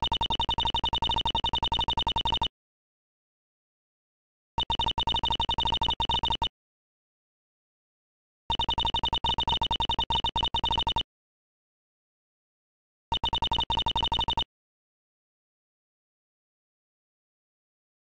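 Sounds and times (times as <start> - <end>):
electronic text beeps: 0.0 - 2.5, 4.6 - 6.5, 8.5 - 11.0, 13.1 - 14.5.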